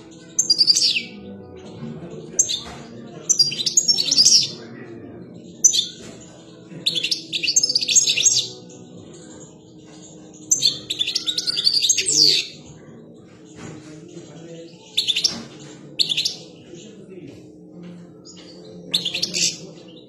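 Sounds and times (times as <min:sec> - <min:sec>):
goldfinch twittering song: 0:00.0 - 0:01.2, 0:02.4 - 0:04.6, 0:05.4 - 0:13.4, 0:14.8 - 0:16.8, 0:18.2 - 0:20.0.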